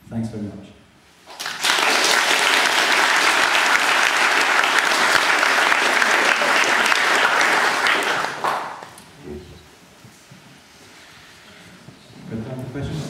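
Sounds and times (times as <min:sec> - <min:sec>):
audience applauding: 0:01.3 - 0:09.0.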